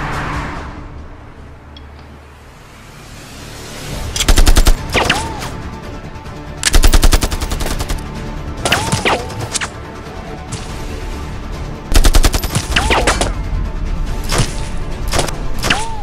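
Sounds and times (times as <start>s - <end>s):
automatic rifle gunfire bursts: 4.3s - 5.2s, 6.6s - 8.0s, 11.9s - 12.9s.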